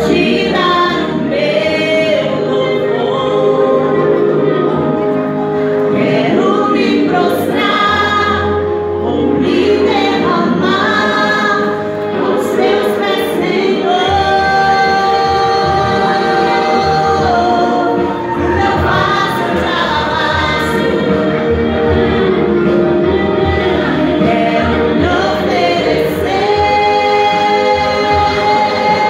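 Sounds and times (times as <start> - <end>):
woman singing into a microphone: 12.4 - 21.0.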